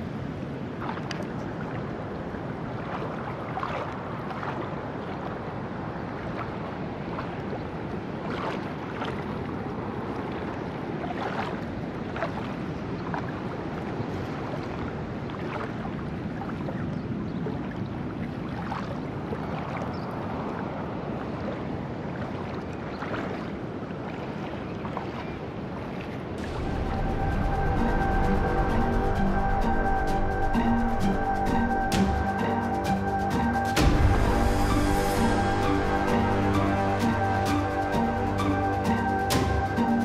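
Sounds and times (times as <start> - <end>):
water sloshing around wading legs: 0.0 - 27.0
small splashes: 0.6 - 20.7, 21.4 - 26.7
river rushing: 24.9 - 40.0.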